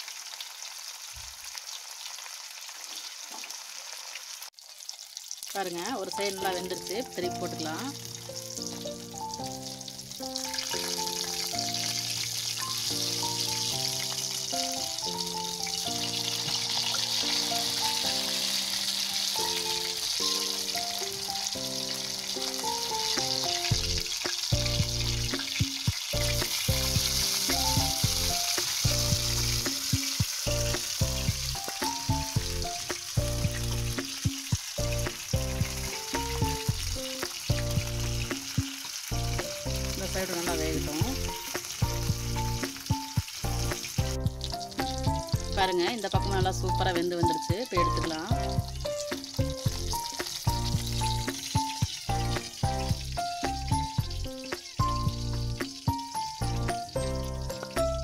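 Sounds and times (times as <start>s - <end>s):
fish sizzling in hot oil: 0.0s - 58.0s
background music melody: 5.6s - 58.0s
heavy beat: 23.2s - 39.8s, 47.6s - 56.9s.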